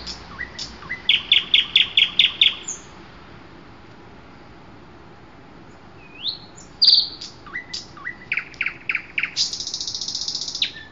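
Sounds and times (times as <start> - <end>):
fast high bird trill: 0.0 - 2.9, 6.0 - 10.9
songbird singing: 0.0 - 3.1, 5.6 - 10.9.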